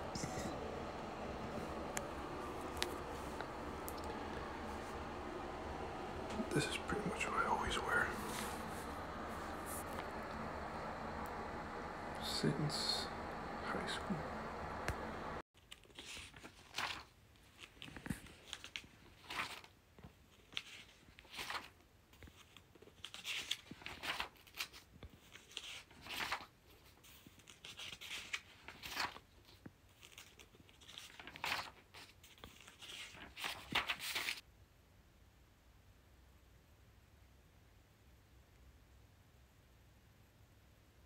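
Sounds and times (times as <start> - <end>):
paper pages rustling: 15.6 - 19.7, 20.3 - 34.4.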